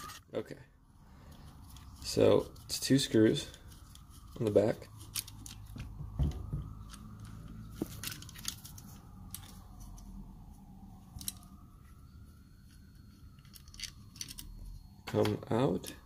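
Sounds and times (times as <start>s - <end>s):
metallic clicks and handling: 5.0s - 5.8s, 6.8s - 10.1s, 11.0s - 11.6s, 12.7s - 16.0s
faint wavering tone: 6.7s - 16.0s.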